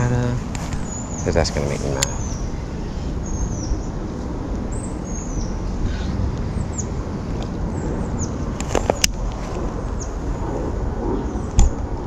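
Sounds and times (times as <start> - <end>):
bird chirping: 0.0 - 4.0, 4.7 - 7.0
low rumble: 0.0 - 12.0.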